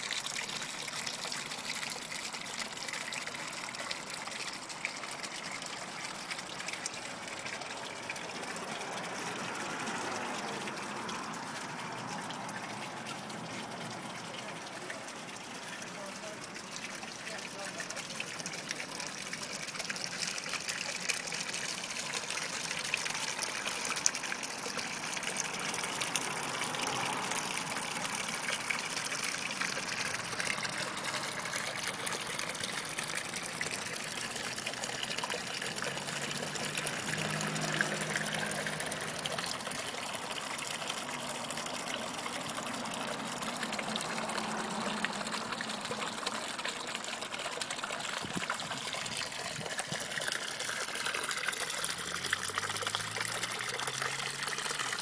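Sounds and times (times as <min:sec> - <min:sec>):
fountain water splashing: 0:00.0 - 0:55.0.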